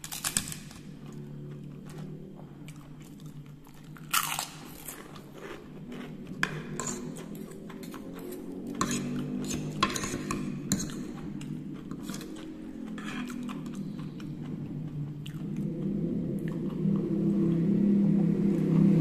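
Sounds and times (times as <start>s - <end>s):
crunching snack: 0.0s - 6.3s
soft chewing: 0.0s - 18.8s.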